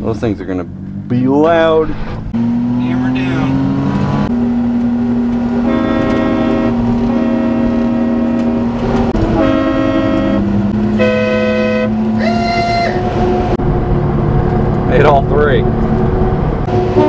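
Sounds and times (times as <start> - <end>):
truck engine droning: 0.0 - 17.0
truck horn blasts: 5.6 - 13.6, 16.7 - 17.0.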